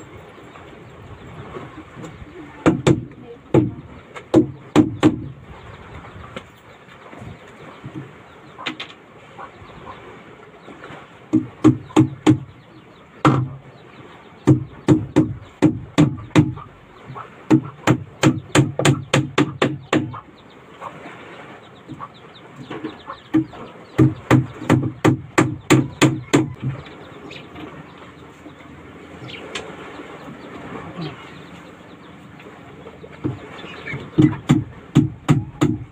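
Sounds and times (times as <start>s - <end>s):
hammer nailing plywood: 34.2s - 35.9s.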